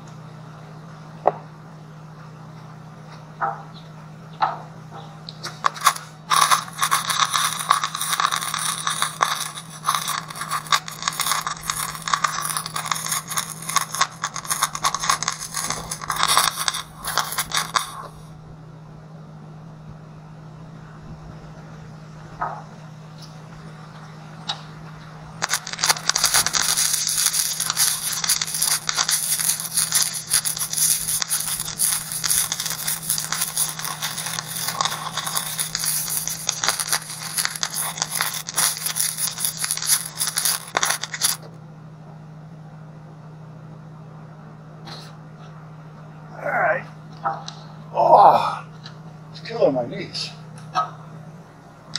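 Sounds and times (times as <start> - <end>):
welding arc crackling: 5.4 - 18.4, 25.3 - 41.5
low hum: 5.5 - 41.8.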